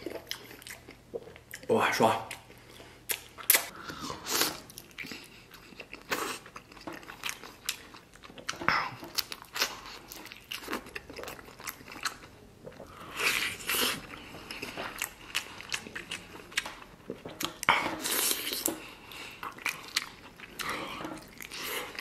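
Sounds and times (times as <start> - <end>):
mouth smacks and clicks: 3.1 - 3.7.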